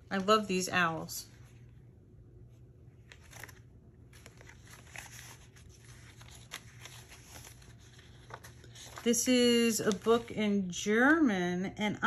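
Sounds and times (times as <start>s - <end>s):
paper pages rustling: 2.9s - 10.7s.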